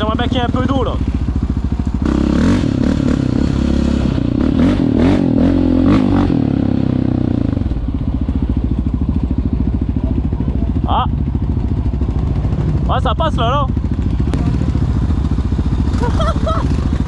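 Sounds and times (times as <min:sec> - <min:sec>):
quad engine revving: 0:00.0 - 0:07.8, 0:12.0 - 0:17.0
engine clattering: 0:05.9 - 0:17.0.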